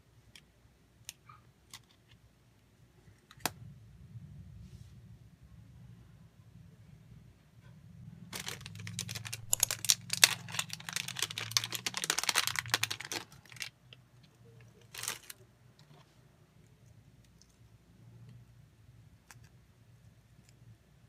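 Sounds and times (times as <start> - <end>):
plastic packaging crinkling: 8.3 - 15.4.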